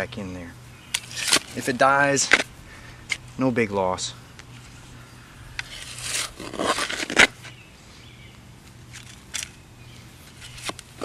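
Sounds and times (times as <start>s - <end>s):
shovel scraping into soil: 1.0s - 2.5s, 5.6s - 7.5s.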